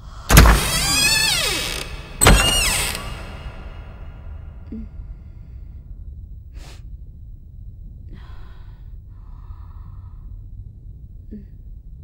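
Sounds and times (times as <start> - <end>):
low steady rumble: 2.6 - 12.0
person breathing: 8.1 - 10.5.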